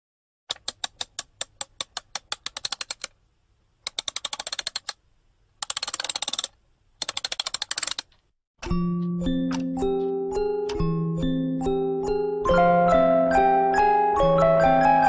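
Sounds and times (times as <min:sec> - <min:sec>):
typewriter key clicks: 0:00.5 - 0:03.1, 0:03.9 - 0:05.0, 0:05.6 - 0:08.2
chiming mallet percussion music: 0:08.7 - 0:15.0.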